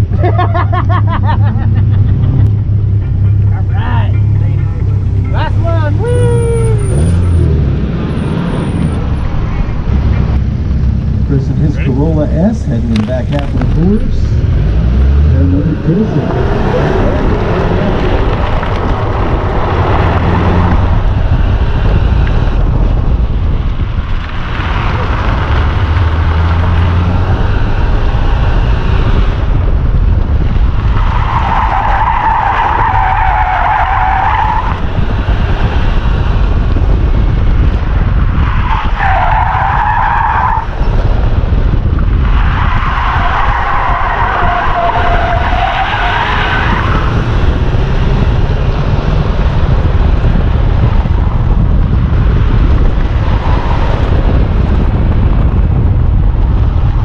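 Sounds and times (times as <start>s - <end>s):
engine and road noise: 0.0s - 57.0s
car tyres squealing: 3.2s - 10.3s, 30.7s - 35.6s, 38.2s - 48.4s.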